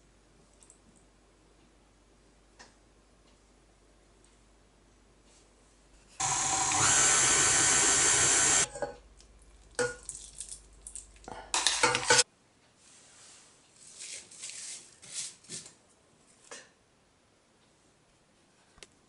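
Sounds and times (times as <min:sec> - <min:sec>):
stand mixer motor whining: 0:06.2 - 0:08.7.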